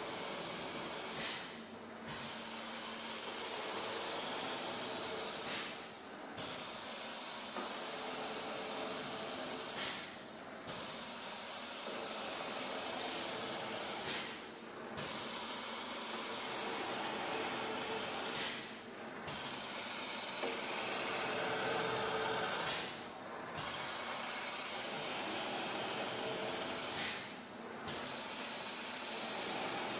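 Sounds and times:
tape cutting machine hissing: 19.3s - 23.0s.

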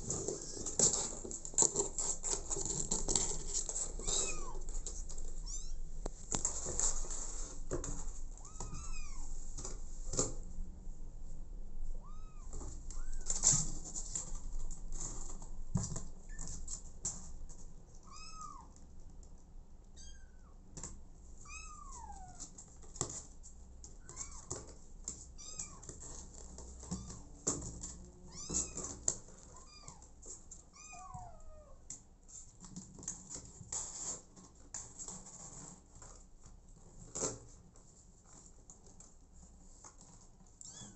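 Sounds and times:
clicks and rustles: 0.0s - 10.5s, 12.5s - 18.0s, 31.8s - 40.9s.

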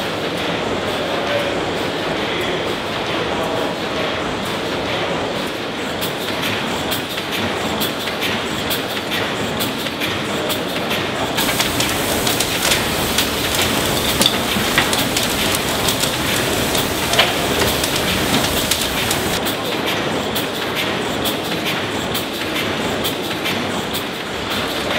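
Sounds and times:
steam engine clatter: 9.2s - 19.8s
boiler fire hiss and crackles: 11.4s - 19.4s.

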